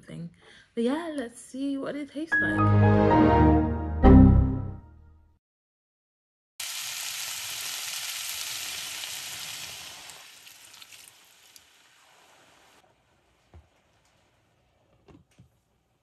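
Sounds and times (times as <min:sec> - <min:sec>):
food sizzling in a pan: 0:06.6 - 0:12.8.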